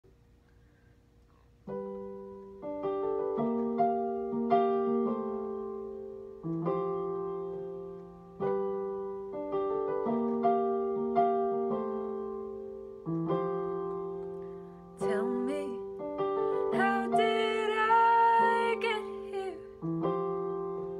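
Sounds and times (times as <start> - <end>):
piano chords ringing: 1.6 - 20.9.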